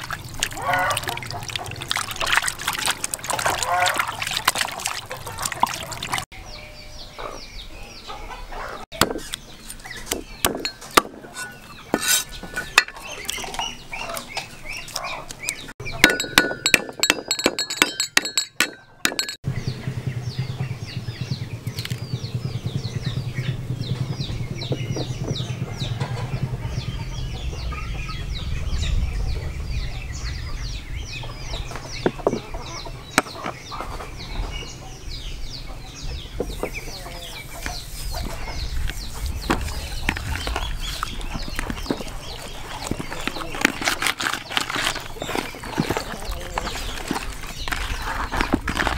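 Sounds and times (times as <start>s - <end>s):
high bird calls chattering: 0.2s - 48.9s
ceramic bowls and spoons clinking: 10.5s - 13.7s, 15.8s - 19.4s
hands rubbing raw chicken: 37.5s - 48.9s.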